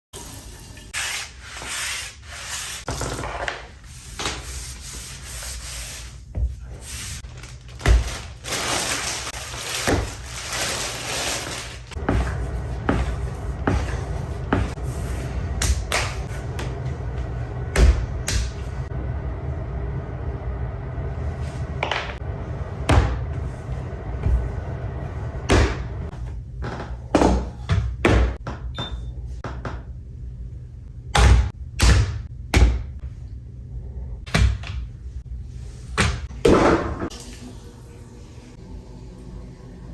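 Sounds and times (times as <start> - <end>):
low hum: 7.4 - 26.6.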